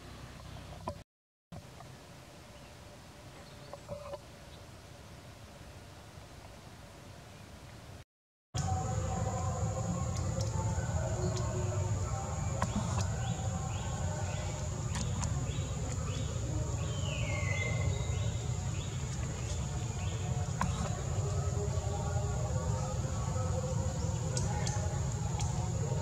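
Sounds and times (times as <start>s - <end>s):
thin high drone: 8.6s - 26.0s.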